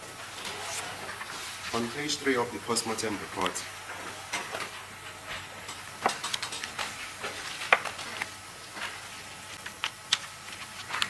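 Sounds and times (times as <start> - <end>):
faint room hiss: 0.0 - 11.0
paper rustling: 0.3 - 2.2, 6.8 - 11.0.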